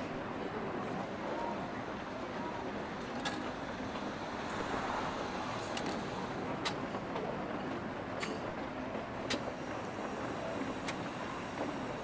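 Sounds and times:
low background murmur: 0:00.0 - 0:05.4.

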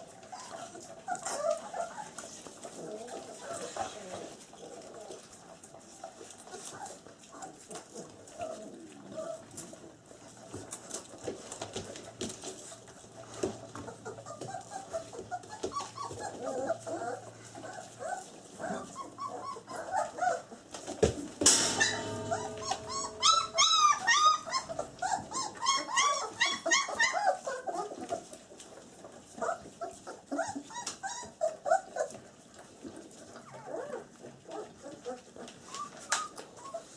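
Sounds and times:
puppies whimpering and squealing: 0:00.0 - 0:11.1, 0:12.0 - 0:20.8, 0:21.5 - 0:36.9
sharp knock: 0:21.4 - 0:24.9.

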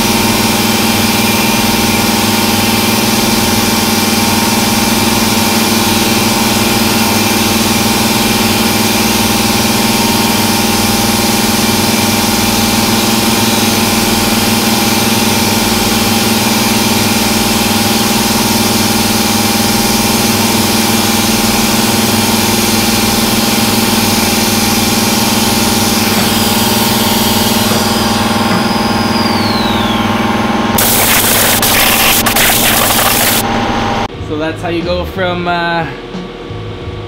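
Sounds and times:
machine hum: 0:28.0 - 0:34.1
metal cutting hiss: 0:30.8 - 0:33.4
whine falling in pitch: 0:30.8 - 0:34.0.

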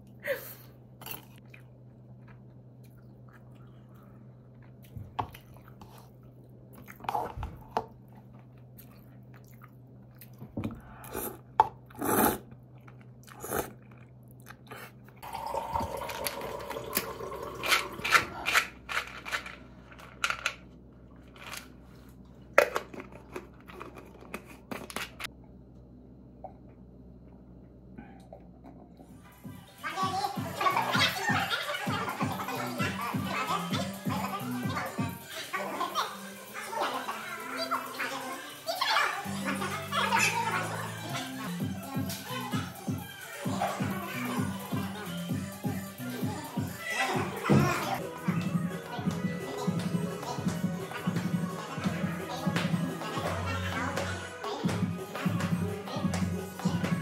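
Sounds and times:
person chewing noodles: 0:01.1 - 0:18.8.

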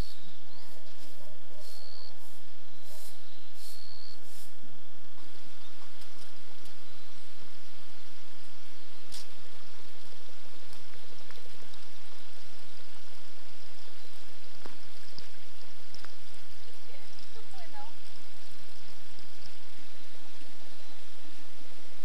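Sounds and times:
faint clicks: 0:14.6 - 0:19.6.

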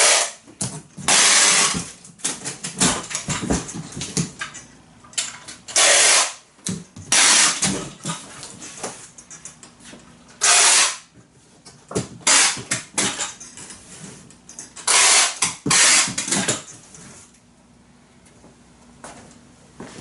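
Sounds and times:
packing tape ripping off roll: 0:00.0 - 0:00.4, 0:01.0 - 0:02.4, 0:05.8 - 0:06.4, 0:07.1 - 0:07.8, 0:10.4 - 0:11.1, 0:12.2 - 0:12.7, 0:14.9 - 0:16.5.

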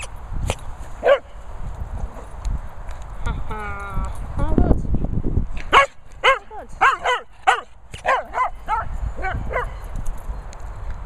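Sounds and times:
dog barking rapidly: 0:01.0 - 0:01.3, 0:05.7 - 0:09.7.

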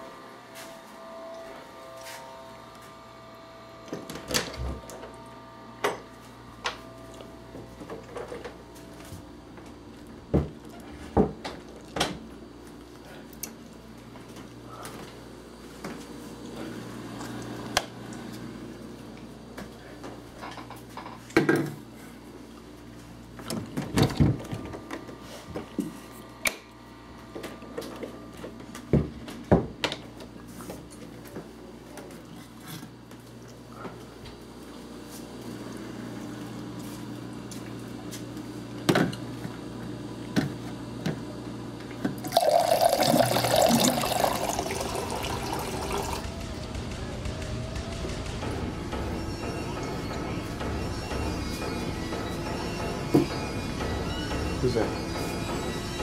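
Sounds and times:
loud rushing noise: 0:46.1 - 0:51.1.

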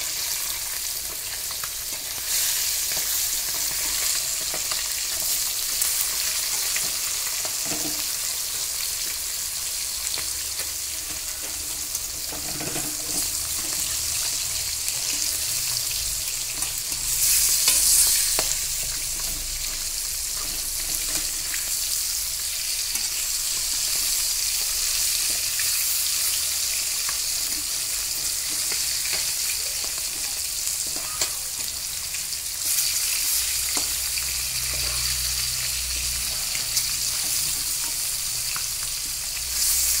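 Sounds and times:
fish sizzling in oil: 0:00.0 - 0:40.0
metal spatula scraping: 0:11.1 - 0:15.8, 0:32.6 - 0:38.8.

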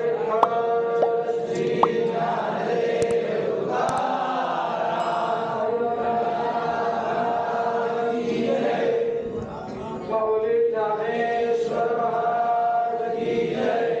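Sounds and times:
voices chanting in held notes: 0:05.8 - 0:09.3, 0:10.4 - 0:14.0.

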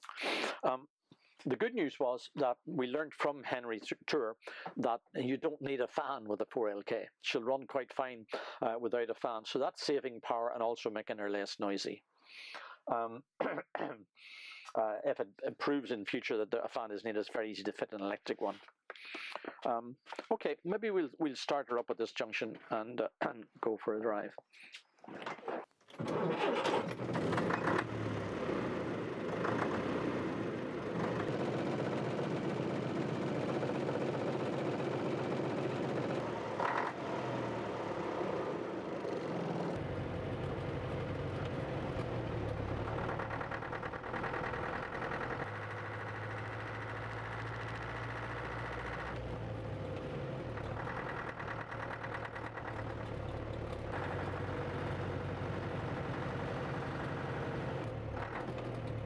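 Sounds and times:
diesel engine droning: 0:26.9 - 0:59.0.

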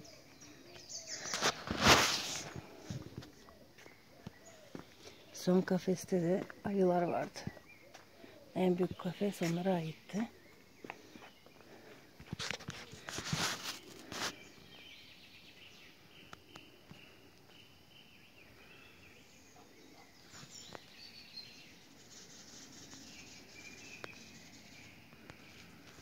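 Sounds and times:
faint birds chirping: 0:00.0 - 0:26.0
loud scuffs: 0:01.3 - 0:03.3.

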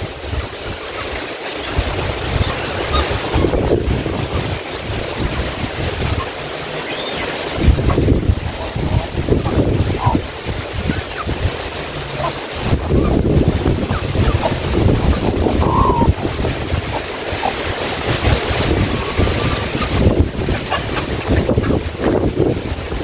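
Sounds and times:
wind buffeting microphone: 0:00.0 - 0:23.0.

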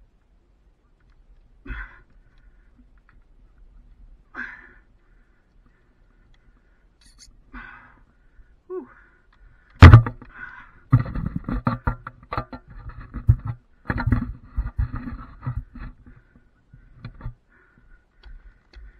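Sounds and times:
faint breathing: 0:01.6 - 0:03.6, 0:04.2 - 0:11.2, 0:14.9 - 0:18.9
knocks and rattles against wooden pole: 0:09.7 - 0:17.4.

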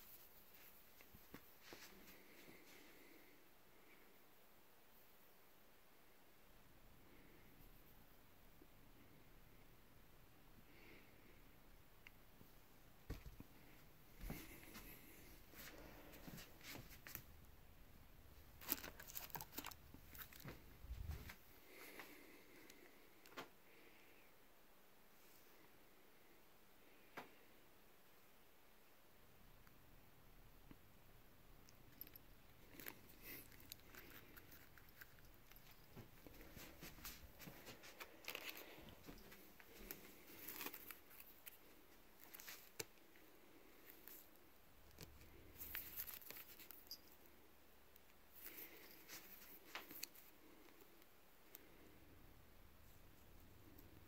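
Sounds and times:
packaging rustling: 0:18.6 - 0:20.6.

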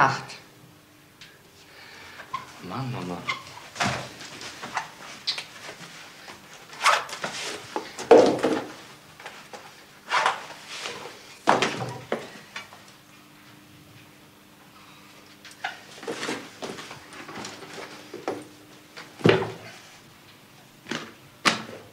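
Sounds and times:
faint steady hum: 0:00.0 - 0:21.9
knocks and clatters of objects: 0:07.2 - 0:08.8.

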